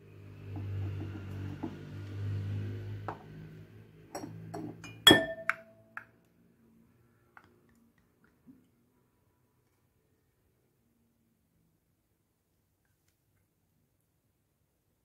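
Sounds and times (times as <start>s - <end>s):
glass cup tapping glass bowl: 4.1s - 5.8s
ringing glass clink: 4.2s - 5.8s.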